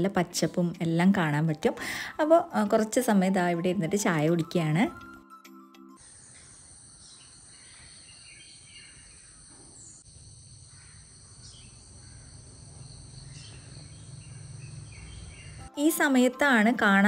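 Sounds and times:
bird chirps: 6.0 - 10.0, 10.7 - 15.7
insect chorus shrilling: 6.0 - 15.5.

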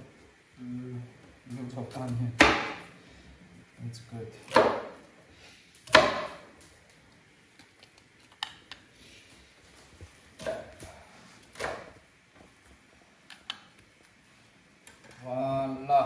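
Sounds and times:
knife chopping on wooden board: 2.3 - 2.9, 4.4 - 5.0, 5.8 - 6.5, 11.5 - 12.0.

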